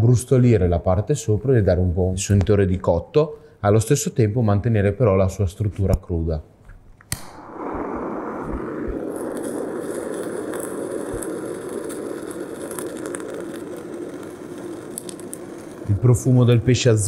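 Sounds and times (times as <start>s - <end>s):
blowtorch flame hissing: 7.2s - 17.0s.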